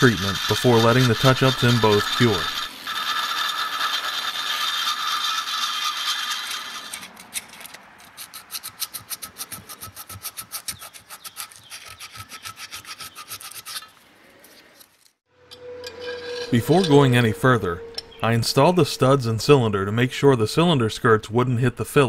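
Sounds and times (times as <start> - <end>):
rotary tool grinding whine: 0.0 - 9.4, 15.4 - 19.3
rhythmic rubbing strokes: 0.0 - 13.9, 15.5 - 21.2.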